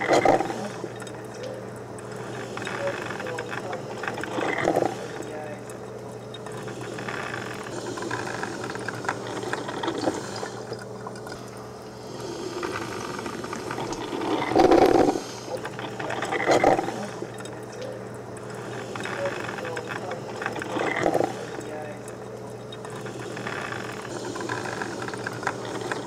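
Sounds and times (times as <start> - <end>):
small clicks: 0.0 - 26.0.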